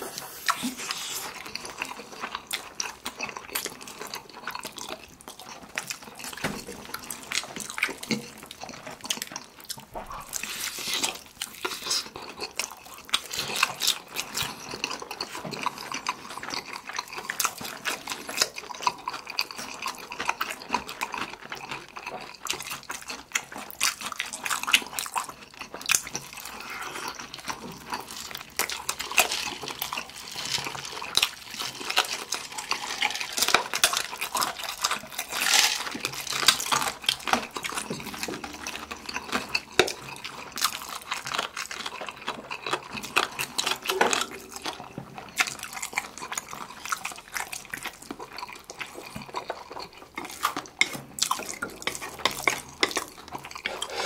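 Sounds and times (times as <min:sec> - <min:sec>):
noodles being slurped: 0:00.0 - 0:54.0
wet chewing and lip-smacking: 0:00.0 - 0:54.0.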